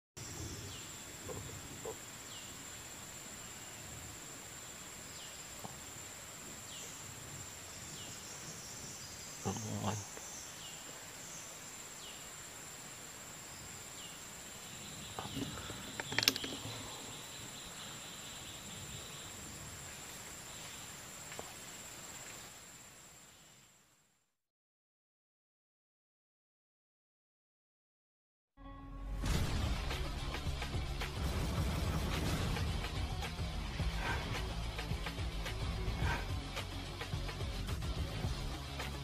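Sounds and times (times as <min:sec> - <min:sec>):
low thump: 0:29.2 - 0:32.6.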